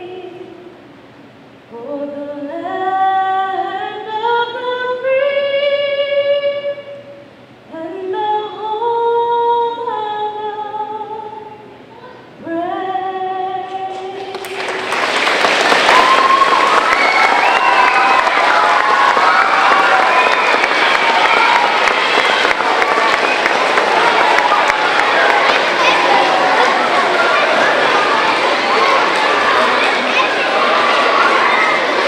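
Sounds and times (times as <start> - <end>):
woman singing unaccompanied: 0.0 - 0.8, 1.7 - 7.1, 7.7 - 14.6
crowd applause and cheering: 14.2 - 32.0.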